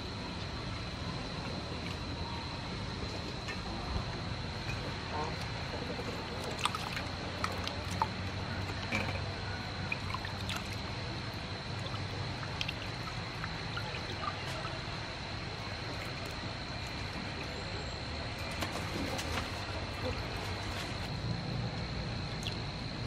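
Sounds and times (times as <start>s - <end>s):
water sloshing in a steel bowl: 1.4s - 21.2s
small splashes and drips: 5.4s - 17.6s, 22.3s - 22.7s.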